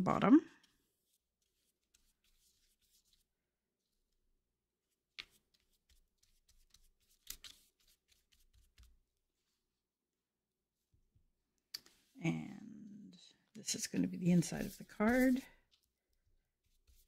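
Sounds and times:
paintbrush strokes on card: 0:00.7 - 0:03.3, 0:14.0 - 0:16.0, 0:16.6 - 0:17.0.

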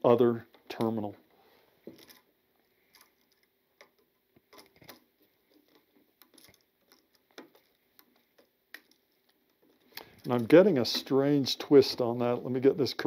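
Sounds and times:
small metal clicks: 0:01.9 - 0:10.7.

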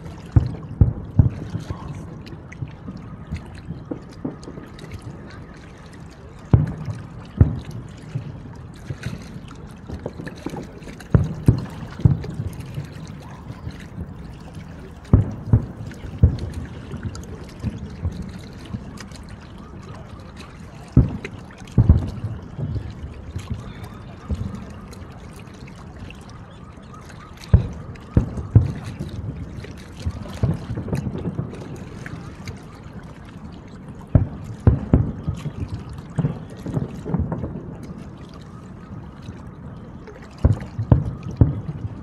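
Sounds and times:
firework shells booming: 0:11.1 - 0:14.4.

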